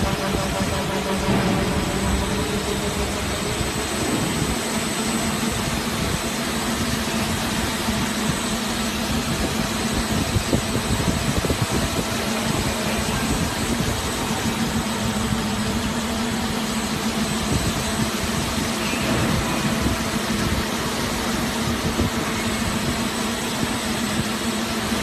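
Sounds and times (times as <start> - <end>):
machine humming with high whine: 0.0 - 25.0.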